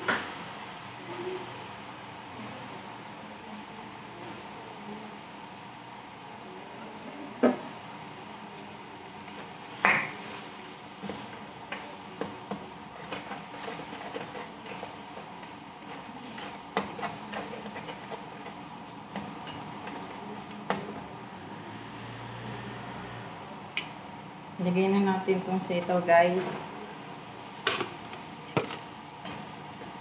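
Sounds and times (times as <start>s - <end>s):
utensils scraping a metal wok: 13.0s - 20.2s.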